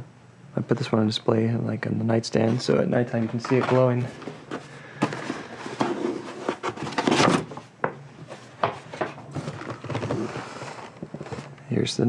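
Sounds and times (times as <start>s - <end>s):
cardboard rubbing and scraping: 3.3s - 7.6s, 8.2s - 11.5s.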